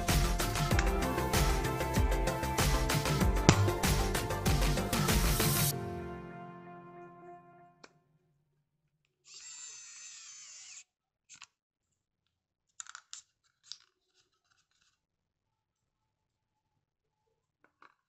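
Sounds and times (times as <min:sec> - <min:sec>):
electric screwdriver motor whirring: 0:09.3 - 0:10.9.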